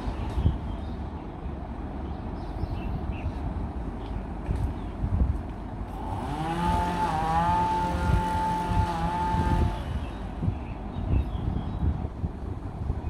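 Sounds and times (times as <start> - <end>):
engine revving: 5.9 - 10.3.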